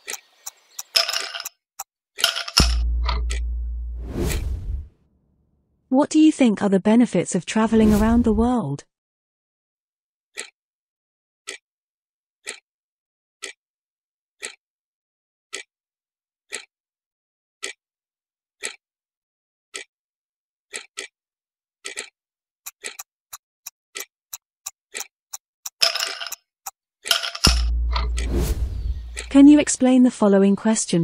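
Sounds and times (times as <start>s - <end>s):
countdown clock ticking: 2.6s - 4.0s, 12.4s - 12.6s, 22.7s - 26.4s, 27.4s - 29.7s.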